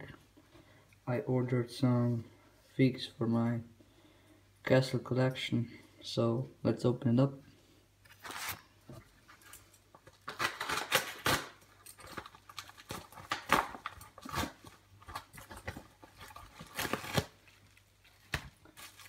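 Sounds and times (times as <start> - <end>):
packaging tearing and rustling: 8.1 - 19.0.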